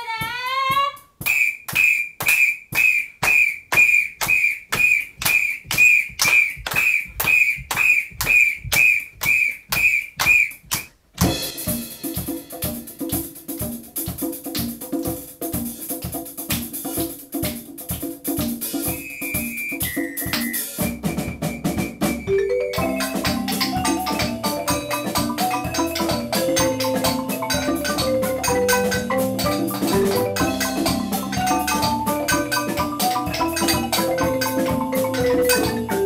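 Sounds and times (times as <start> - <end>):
congas: 0.0 - 36.0
sharp claps: 0.3 - 11.4, 13.0 - 13.3, 14.4 - 14.8, 16.0 - 18.5, 20.3 - 20.6, 22.8 - 35.8
whistle blasts: 1.2 - 10.7, 18.8 - 23.2
drum kit with cymbals: 10.5 - 36.0.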